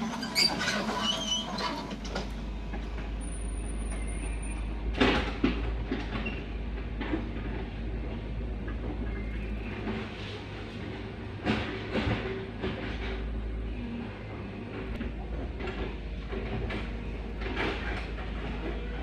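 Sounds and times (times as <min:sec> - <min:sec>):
diesel engine rumbling: 0:00.0 - 0:19.0.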